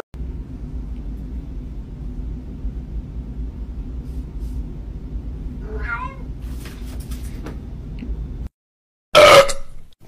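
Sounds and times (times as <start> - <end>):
steady low rumble: 0.2 - 8.5
cat meowing: 5.6 - 6.3.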